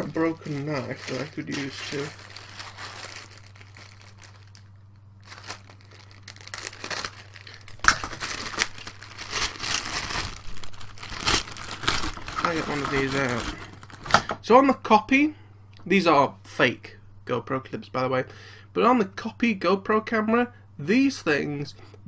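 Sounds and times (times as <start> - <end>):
plastic bag crinkling: 0.0 - 14.4
low steady hum: 0.0 - 22.0.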